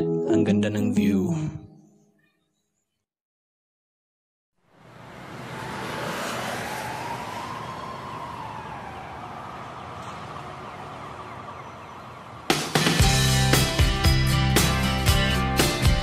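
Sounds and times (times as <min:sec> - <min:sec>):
road and wind noise: 0:04.6 - 0:13.6
scooter engine whine: 0:04.9 - 0:13.4.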